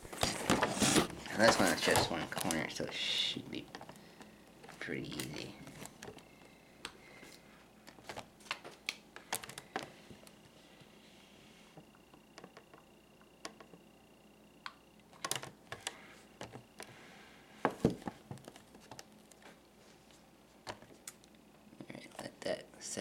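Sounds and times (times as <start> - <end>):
plastic blister pack crinkling: 0.1 - 6.3, 7.2 - 10.4.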